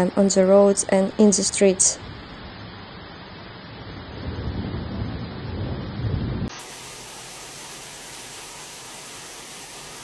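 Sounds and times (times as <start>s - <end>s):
torrential rain hissing: 0.0s - 10.0s
low rumbling: 3.7s - 6.5s.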